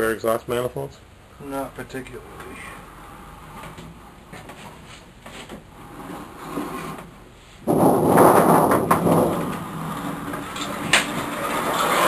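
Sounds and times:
loud grating metal scrape: 5.7 - 7.1, 7.7 - 12.0
cutter scraping sheet metal: 10.6 - 12.0.

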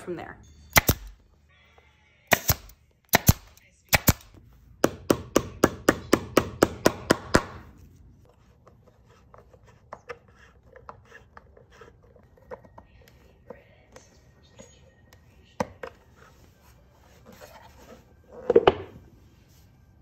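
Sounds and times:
pneumatic staple gun firing: 0.8 - 1.1, 2.3 - 4.2.

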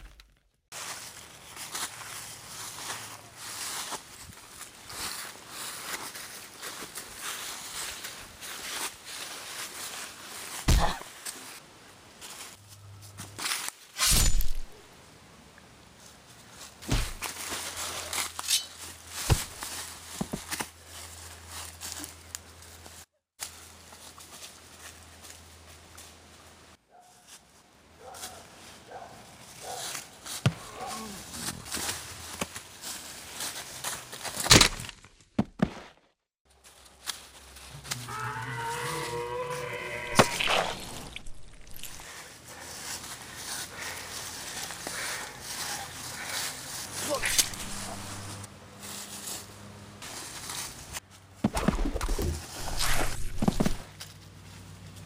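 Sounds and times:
dry leaves crunching underfoot: 0.7 - 14.8, 16.0 - 26.2, 27.2 - 35.2, 36.5 - 55.0
person moaning like a zombie: 10.7 - 11.0
sharp thumps: 10.7 - 11.0, 16.8 - 17.3, 47.2 - 48.4.

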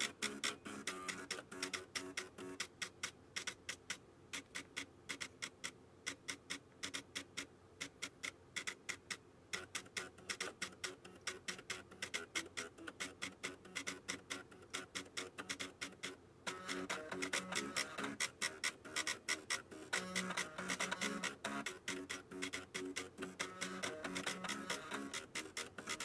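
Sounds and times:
floppy drive motors clicking: 0.0 - 26.0.

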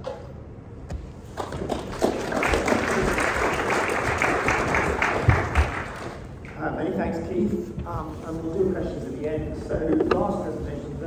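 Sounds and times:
audience applauding: 1.4 - 6.4.

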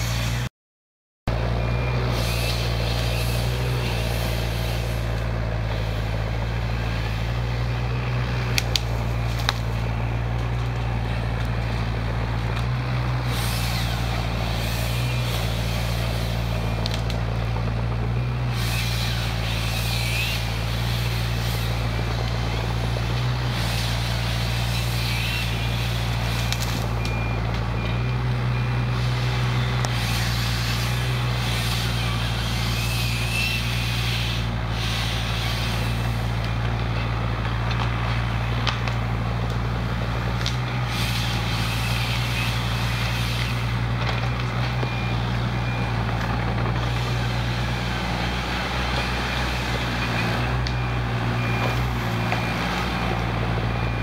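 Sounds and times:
diesel engine droning: 0.0 - 0.5, 1.3 - 54.0
saw cutting branches: 0.0 - 0.5, 2.0 - 17.6, 18.2 - 27.3, 28.9 - 54.0
sharp wood cracks: 7.3 - 28.4, 34.8 - 47.7.

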